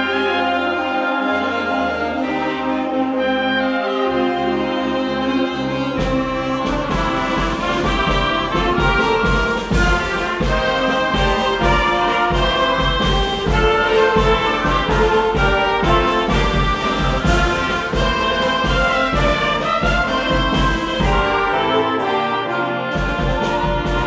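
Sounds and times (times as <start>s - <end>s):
wind band playing chords: 0.0s - 24.0s
drum kit steady beat: 6.0s - 22.0s, 23.0s - 24.0s.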